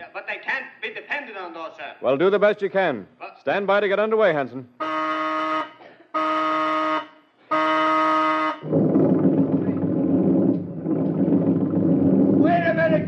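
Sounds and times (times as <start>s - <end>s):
boat motors rumbling: 8.6s - 13.0s.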